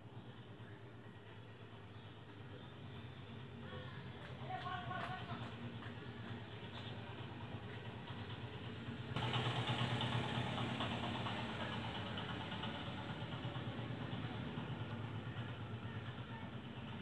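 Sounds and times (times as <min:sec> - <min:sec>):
mechanical rumble: 0:05.3 - 0:17.0.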